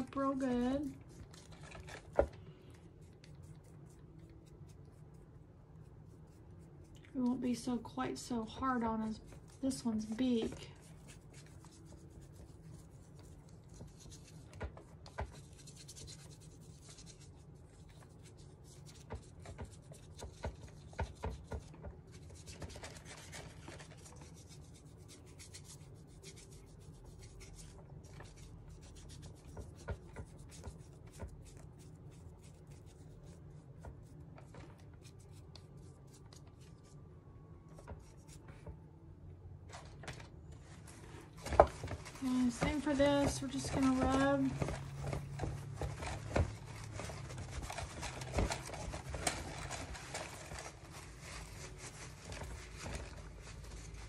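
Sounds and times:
paintbrush rubbing: 0:03.0 - 0:07.0, 0:08.7 - 0:21.6, 0:22.2 - 0:37.0.

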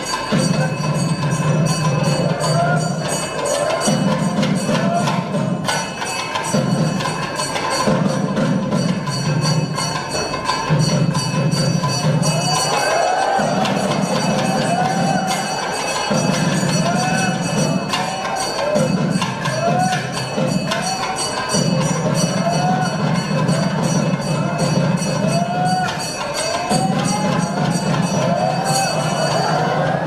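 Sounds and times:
bells ringing rapidly: 0:00.0 - 0:30.0
clanging percussion: 0:00.0 - 0:30.0.

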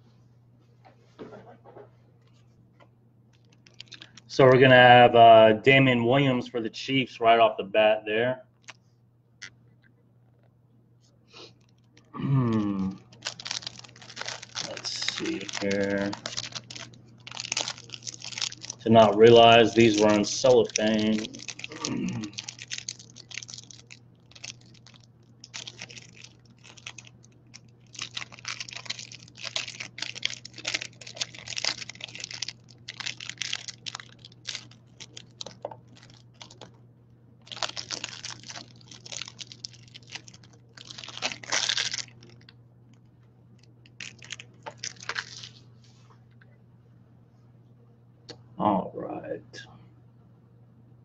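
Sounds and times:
cellophane crinkling: 0:03.3 - 0:04.7, 0:11.4 - 0:36.8, 0:37.4 - 0:45.7.

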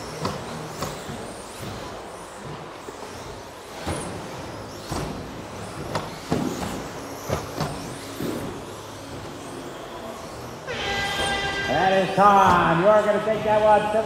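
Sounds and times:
steady running noise: 0:00.0 - 0:14.0
electric motor whine: 0:06.4 - 0:13.2.

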